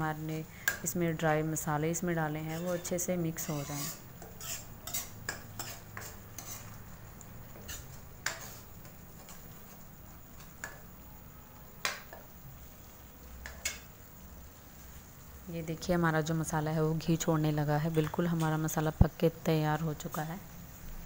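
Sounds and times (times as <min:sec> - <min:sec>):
metal spoon scraping paste in a pan: 0:02.4 - 0:06.8, 0:07.5 - 0:09.7.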